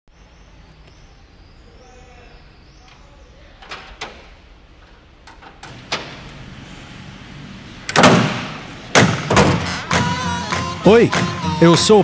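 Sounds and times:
car door slamming: 7.9s - 10.0s
car door clicks and knock: 9.0s - 9.7s.

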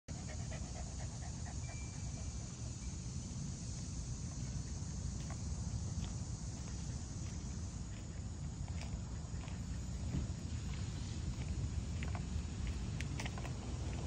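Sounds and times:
constant low rumble: 0.1s - 14.0s
high insect drone: 0.1s - 14.0s
footsteps on wood-chip mulch: 4.2s - 14.0s.

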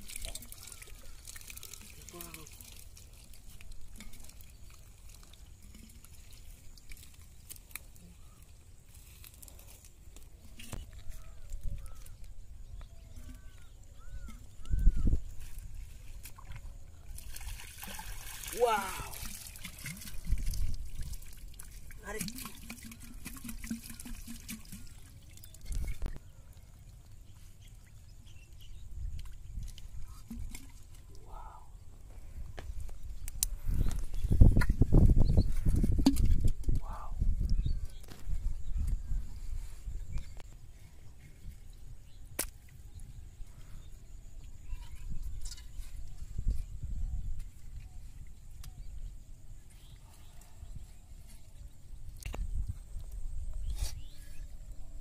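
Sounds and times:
splashes in muddy puddle: 16.2s - 25.6s.

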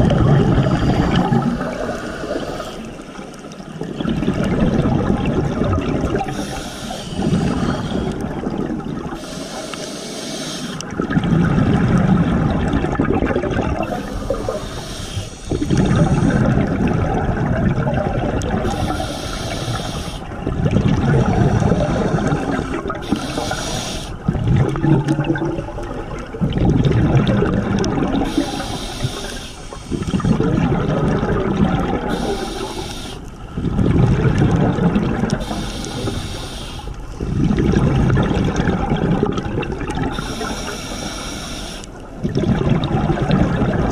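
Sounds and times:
exhaled air bubbling: 0.0s - 43.9s
regulator inhale hiss: 0.6s - 3.1s, 6.2s - 8.2s, 9.2s - 10.8s, 13.8s - 16.3s, 18.6s - 20.3s, 21.8s - 24.2s, 28.2s - 30.2s, 32.1s - 33.4s, 35.4s - 37.2s, 40.1s - 42.0s.

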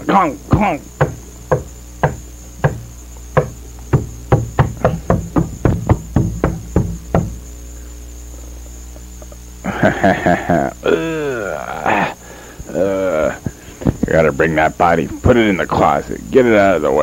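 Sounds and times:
steady low hum: 0.0s - 17.0s
stick knocking on hard surface: 0.5s - 7.4s.

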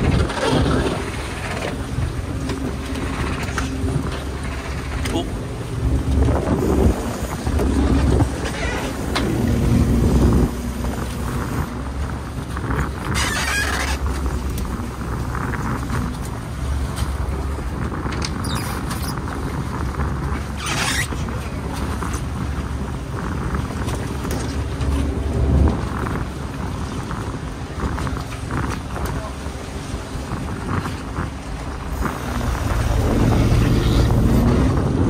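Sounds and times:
boat engine running: 0.0s - 35.0s
water and wind noise: 0.0s - 35.0s
brief squeak: 18.3s - 19.2s.

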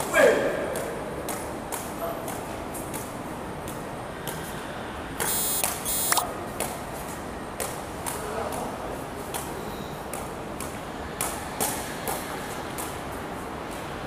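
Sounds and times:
harsh electronic beeps: 5.2s - 6.2s.

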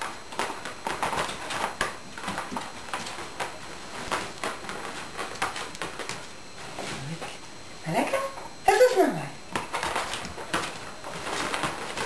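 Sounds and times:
dog claws clicking on wood floor: 9.5s - 12.0s.

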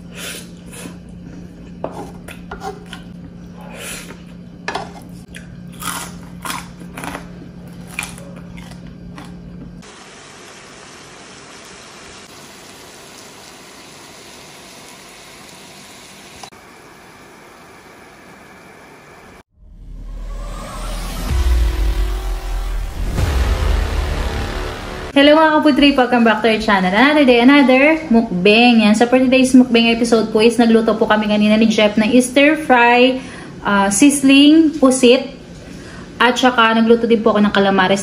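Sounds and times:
chewing with lip smacks: 5.3s - 9.4s
food sizzling on hot plate: 9.8s - 16.4s
low hum: 16.6s - 28.6s.

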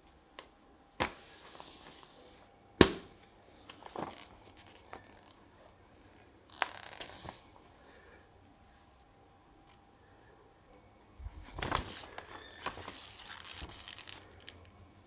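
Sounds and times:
paper rustling and crackling: 3.5s - 5.8s, 6.5s - 7.7s, 11.3s - 14.8s
sharp paper crack: 6.5s - 7.5s, 11.4s - 14.7s.

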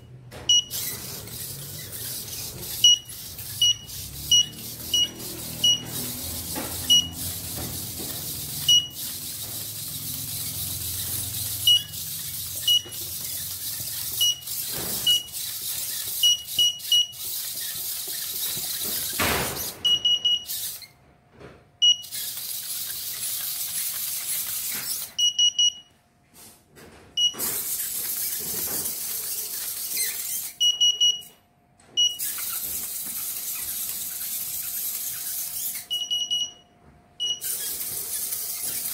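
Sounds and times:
faint servo whirring: 0.6s - 20.9s, 22.0s - 25.2s, 27.3s - 30.7s, 32.2s - 36.1s, 37.4s - 38.9s
short high electronic beeps: 2.8s - 6.0s, 6.9s - 7.3s, 8.6s - 9.1s.

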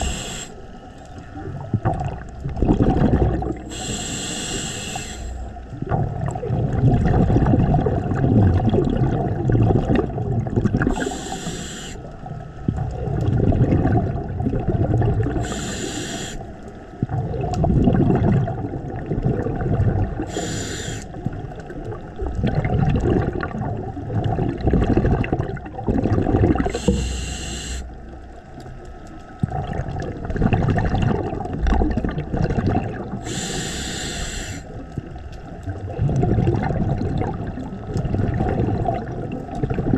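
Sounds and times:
regulator inhalation hiss: 0.0s - 0.8s, 3.6s - 5.5s, 10.9s - 12.1s, 15.4s - 16.6s, 20.3s - 21.2s, 26.7s - 28.0s, 33.2s - 34.8s
rumbling exhaust bubbles: 1.4s - 4.2s, 5.7s - 11.3s, 12.7s - 15.6s, 17.0s - 20.5s, 21.2s - 27.2s, 29.4s - 33.5s, 34.9s - 39.9s.

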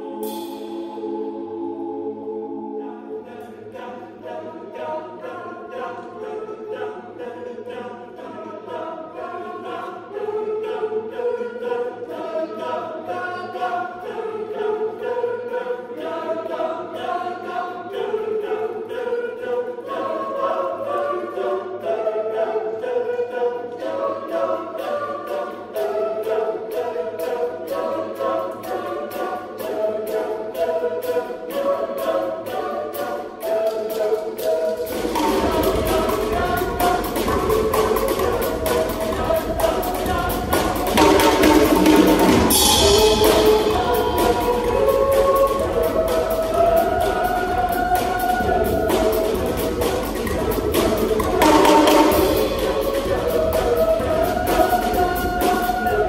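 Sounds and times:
boys' choir singing: 0.0s - 56.0s
steady ticking beat: 26.2s - 56.0s.

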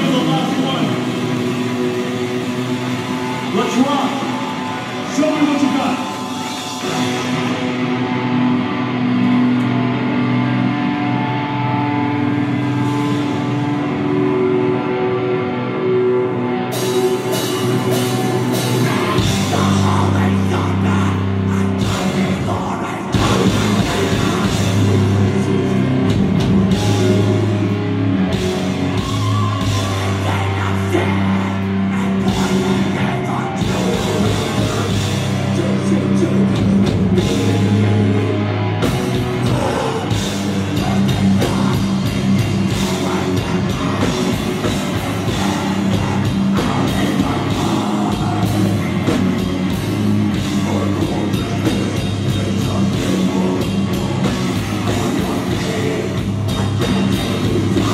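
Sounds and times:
drum kit: 0.0s - 15.3s, 16.5s - 57.9s
electric guitars: 0.0s - 57.9s
person singing into a microphone: 17.5s - 26.0s, 28.9s - 57.9s.

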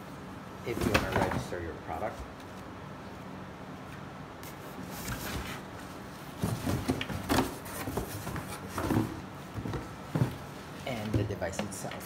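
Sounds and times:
cardboard rustling and scraping: 0.7s - 1.6s, 3.8s - 11.3s.

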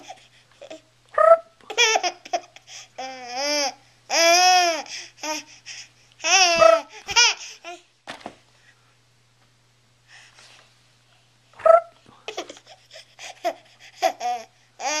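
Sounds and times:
baby laughing: 0.0s - 4.3s, 6.2s - 7.8s, 11.6s - 15.0s
soft breath: 10.0s - 11.4s.

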